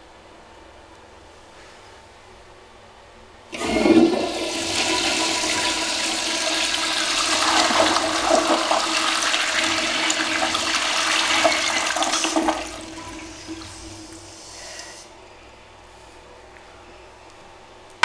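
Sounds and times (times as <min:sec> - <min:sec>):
toilet flushing: 0:03.5 - 0:15.1.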